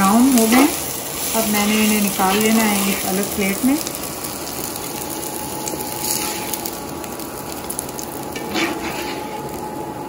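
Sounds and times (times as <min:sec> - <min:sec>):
onions sizzling in hot oil: 0:00.0 - 0:10.0
spatula scraping a pan: 0:01.6 - 0:03.2, 0:06.0 - 0:06.7, 0:08.4 - 0:09.6.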